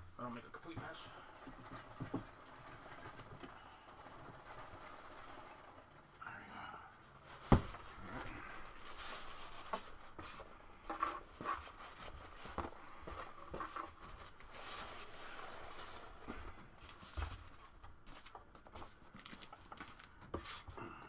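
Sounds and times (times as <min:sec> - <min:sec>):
packing peanuts rustling: 0:00.5 - 0:06.1, 0:07.1 - 0:20.6
cardboard box being handled: 0:07.3 - 0:10.5.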